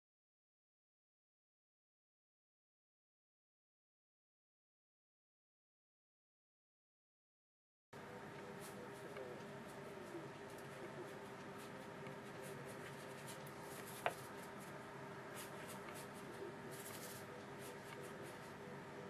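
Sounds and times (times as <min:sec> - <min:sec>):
steady low hum: 0:08.0 - 0:19.0
paintbrush brushing on paper: 0:08.4 - 0:18.7.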